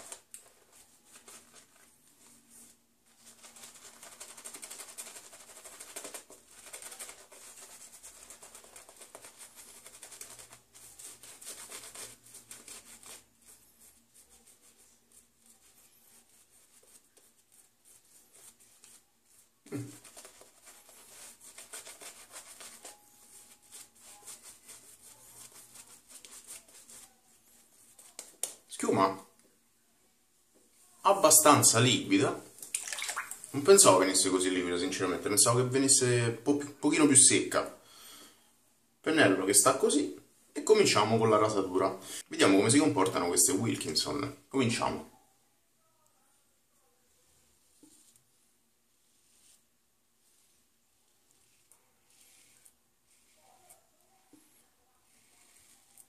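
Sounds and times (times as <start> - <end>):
shaving brush rubbing lather: 0.0 - 29.3, 48.9 - 56.0.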